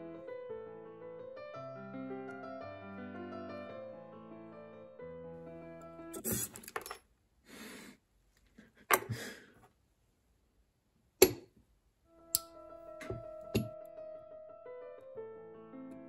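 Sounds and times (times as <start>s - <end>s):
piano music: 0.0s - 6.2s, 12.1s - 16.0s.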